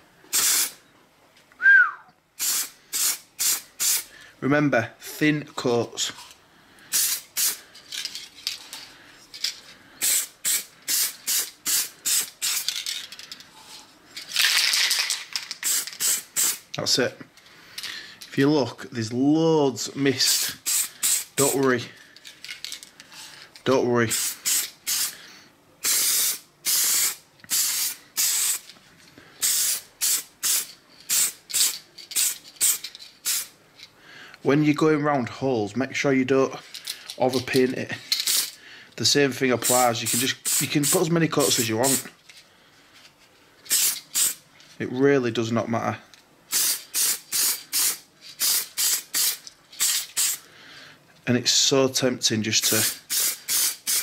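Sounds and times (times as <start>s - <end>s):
spray paint can hissing: 0.3s - 0.8s, 2.4s - 4.1s, 6.9s - 7.6s, 10.0s - 12.8s, 15.5s - 16.7s, 20.3s - 21.6s, 24.1s - 25.2s, 25.8s - 28.7s, 29.4s - 33.6s, 38.3s - 38.5s, 39.6s - 42.1s, 43.7s - 44.4s, 46.5s - 50.4s, 52.6s - 54.0s.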